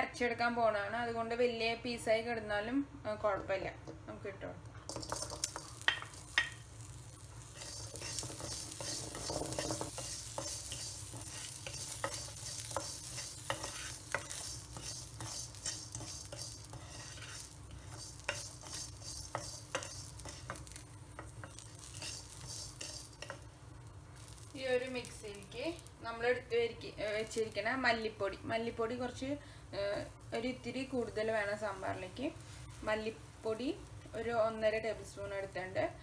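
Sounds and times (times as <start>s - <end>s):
light steady sizzle: 0.0s - 36.0s
wooden spoon scraping a pan: 4.8s - 23.6s.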